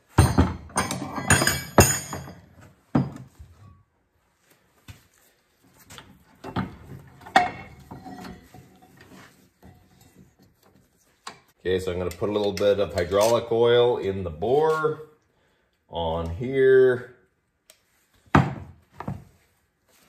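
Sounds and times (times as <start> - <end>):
metal scraping and rattling: 0.0 - 2.5, 6.2 - 11.2
metal knocks and clanks: 0.0 - 3.4, 6.4 - 10.4.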